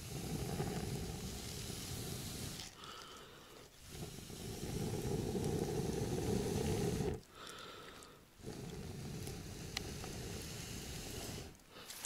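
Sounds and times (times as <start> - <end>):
person blowing on fire: 0.0 - 2.8, 3.8 - 7.2, 8.4 - 11.6.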